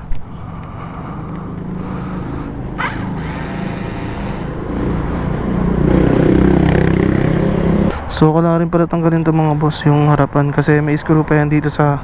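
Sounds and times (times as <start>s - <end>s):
vehicle engine running: 0.4s - 7.9s.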